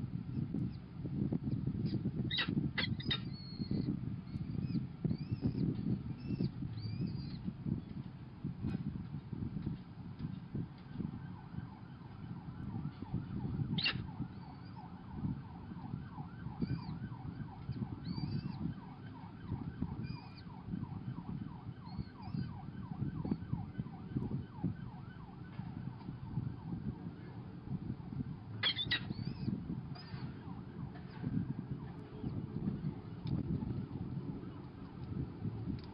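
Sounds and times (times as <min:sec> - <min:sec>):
falcon chicks begging cheeps: 0:02.3 - 0:03.8, 0:13.8 - 0:14.0, 0:28.6 - 0:30.1.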